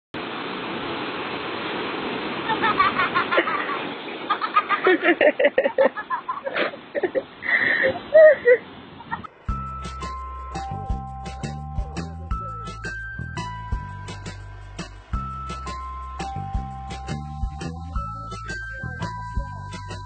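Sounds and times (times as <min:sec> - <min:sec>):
surf: 0:00.2 - 0:20.0
wind: 0:00.2 - 0:20.0
people's voices: 0:17.6 - 0:20.0.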